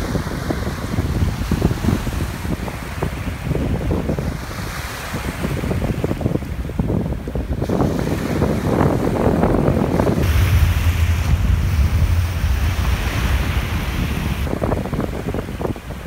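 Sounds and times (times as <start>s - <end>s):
wind blowing across microphone: 0.0s - 16.0s.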